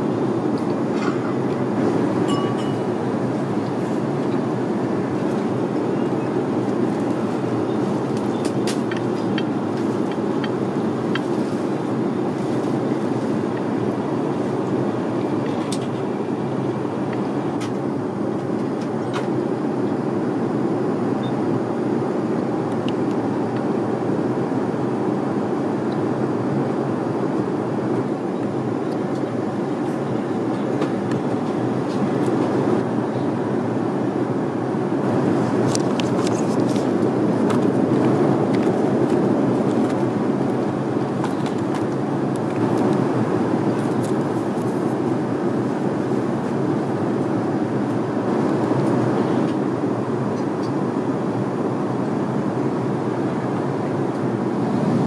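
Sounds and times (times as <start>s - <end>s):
airliner cabin roar: 0.0s - 55.0s.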